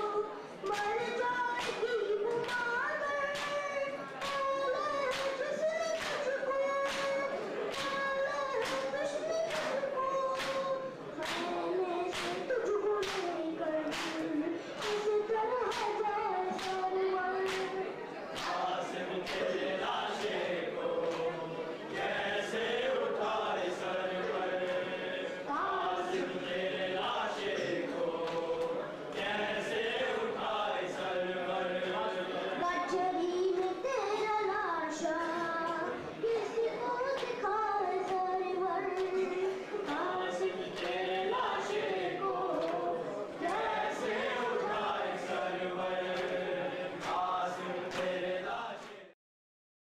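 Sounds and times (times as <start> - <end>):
group of men chanting: 18.4 - 32.6, 40.0 - 49.1.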